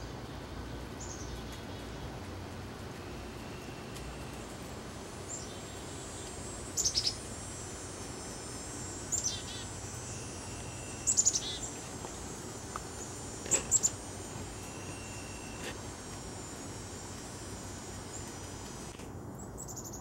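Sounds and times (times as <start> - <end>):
small songbird calling: 5.3 - 7.6, 8.5 - 18.9.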